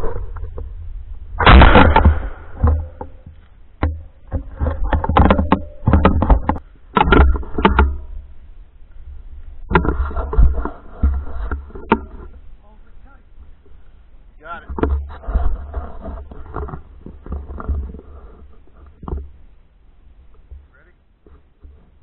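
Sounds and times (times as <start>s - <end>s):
loud burst of noise: 1.4s - 2.7s.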